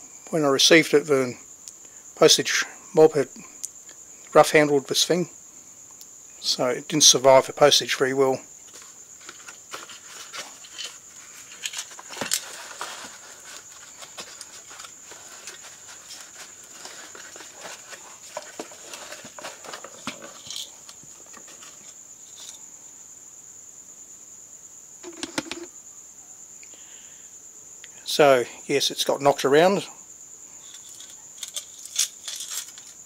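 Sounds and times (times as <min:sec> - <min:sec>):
cardboard box scraping and rustling: 0:08.7 - 0:20.5
clicks and knocks: 0:25.0 - 0:25.7.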